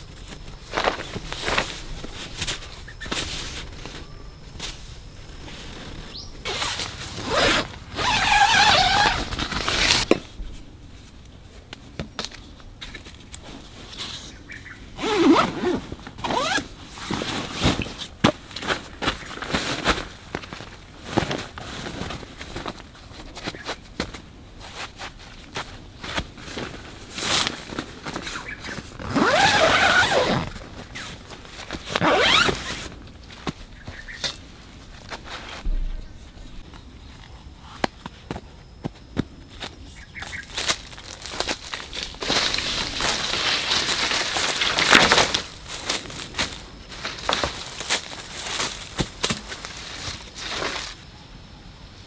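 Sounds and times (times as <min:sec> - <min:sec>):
zipper pulled: 0:06.5 - 0:10.0, 0:29.0 - 0:31.1, 0:31.9 - 0:32.9.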